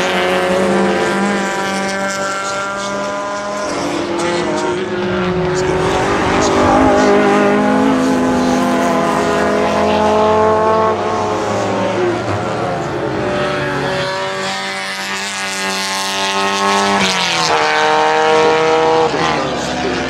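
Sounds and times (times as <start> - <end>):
racing car accelerating: 0.0 - 20.0
racing car engine passing: 0.0 - 20.0.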